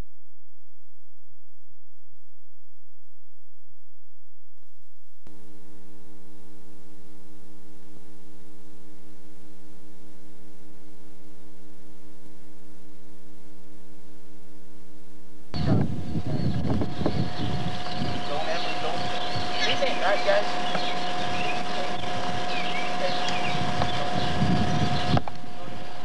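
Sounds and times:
noisy recorded sound: 0.0 - 26.0
electrical mains hum: 5.2 - 26.0.

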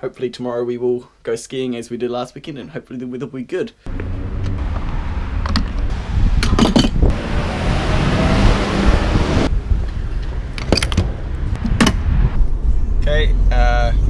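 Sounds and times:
wind rumble on microphone: 4.0 - 13.3.

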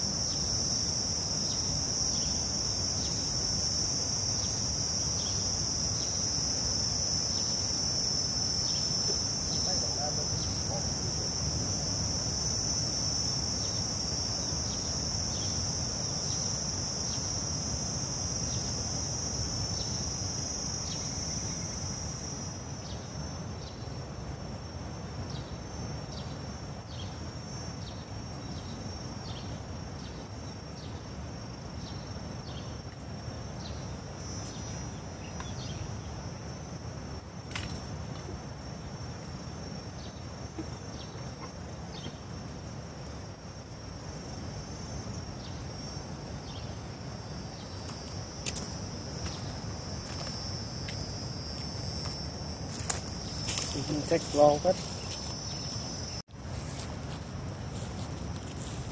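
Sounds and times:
insects shrilling: 0.0 - 23.8, 43.1 - 58.9.

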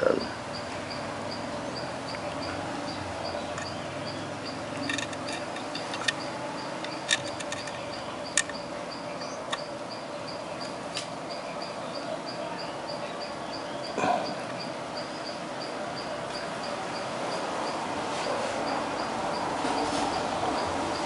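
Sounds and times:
insect chirping: 0.0 - 21.0
electronic parts clicking: 3.4 - 3.8, 4.4 - 8.7, 9.5 - 9.7.

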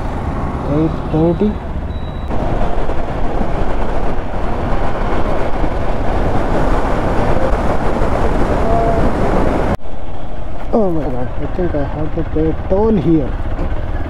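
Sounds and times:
wind and road noise: 0.0 - 14.0
motorcycle engine running: 10.7 - 14.0.

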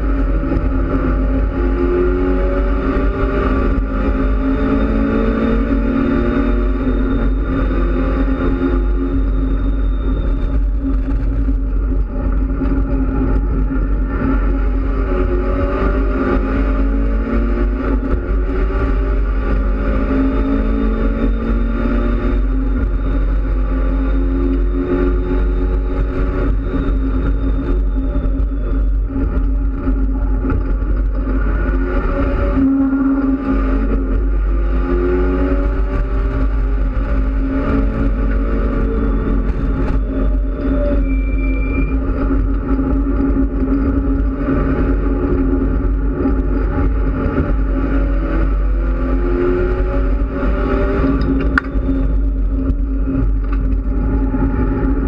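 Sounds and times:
race car engine accelerating: 0.0 - 55.0.

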